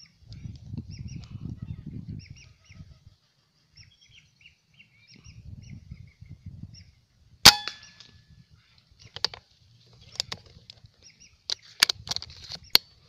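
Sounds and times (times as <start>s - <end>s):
air rifle shot: 7.5s - 8.0s.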